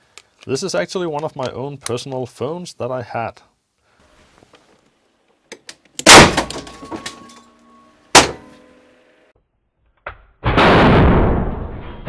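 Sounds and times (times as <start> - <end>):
sharp crack: 6.0 - 6.7, 8.2 - 8.6
phone exploding with loud bang: 6.1 - 6.6, 10.4 - 12.0
metallic ringing: 6.8 - 9.0.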